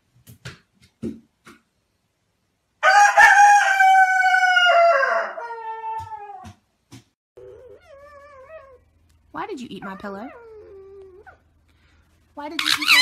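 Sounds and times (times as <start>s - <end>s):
rooster crowing: 2.8s - 6.1s.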